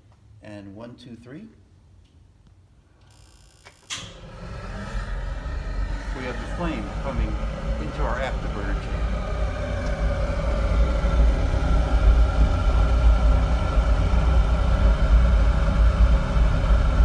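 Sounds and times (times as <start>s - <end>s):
steady hum: 1.4s - 17.0s
gas burner rumble: 3.9s - 17.0s.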